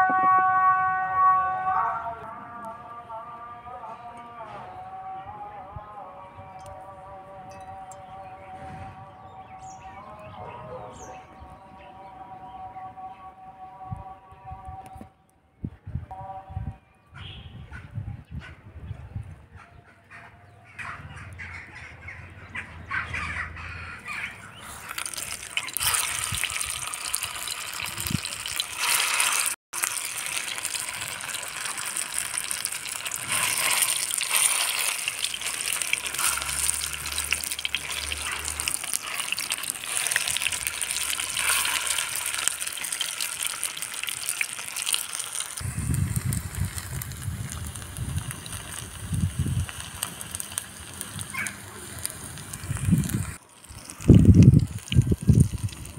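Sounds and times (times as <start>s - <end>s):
kebabs sizzling in oil: 24.4s - 55.9s.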